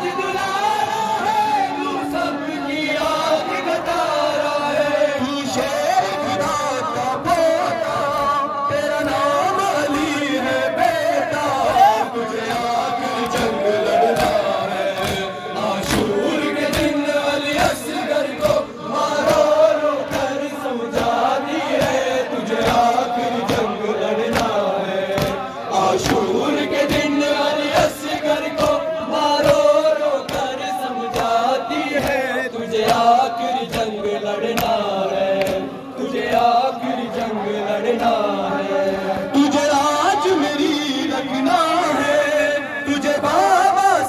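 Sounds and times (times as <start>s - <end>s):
men chanting in unison: 0.0s - 44.0s
hands slapping chests: 11.7s - 20.4s, 24.3s - 33.9s, 34.5s - 36.6s.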